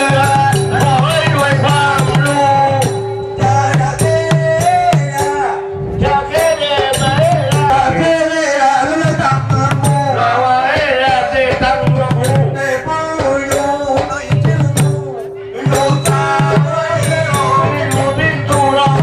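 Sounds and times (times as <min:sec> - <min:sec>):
hand drum beats: 0:00.0 - 0:19.0
person singing: 0:00.0 - 0:19.0.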